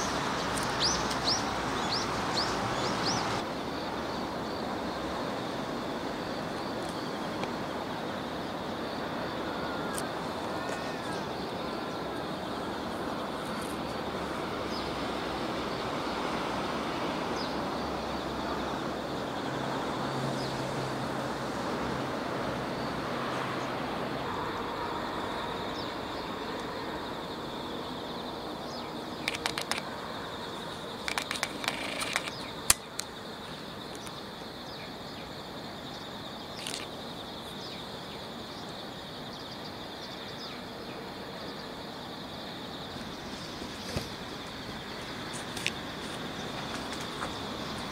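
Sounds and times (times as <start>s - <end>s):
sharp clicks: 29.2s - 29.9s, 31.0s - 33.1s.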